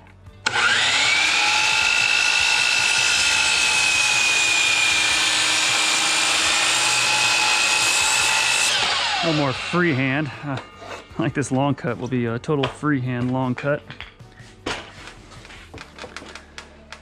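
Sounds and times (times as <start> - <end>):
circular saw cutting wood: 0.4 - 12.2.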